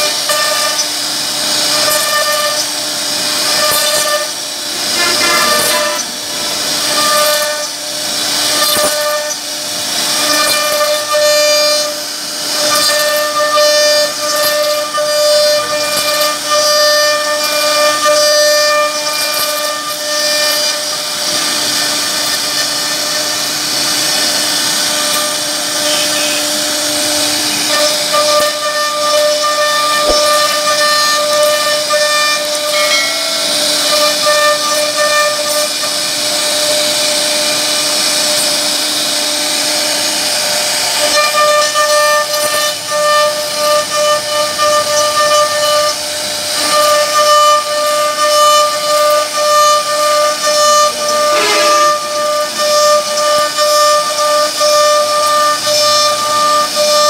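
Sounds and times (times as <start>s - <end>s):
router spindle whine: 0.0s - 57.0s
bit cutting wood hiss: 24.2s - 33.4s, 50.1s - 54.4s.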